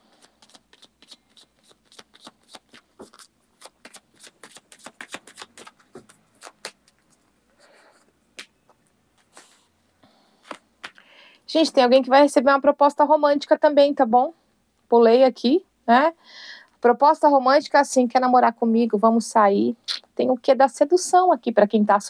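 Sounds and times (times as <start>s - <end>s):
cards being shuffled: 0.1s - 7.2s, 10.4s - 11.0s.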